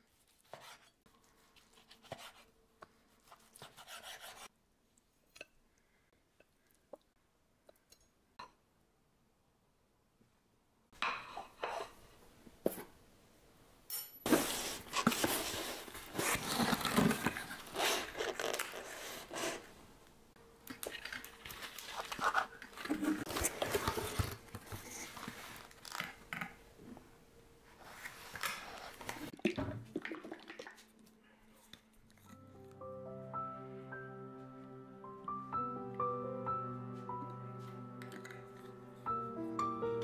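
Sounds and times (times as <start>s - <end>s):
food packaging tearing: 14.9s - 19.6s.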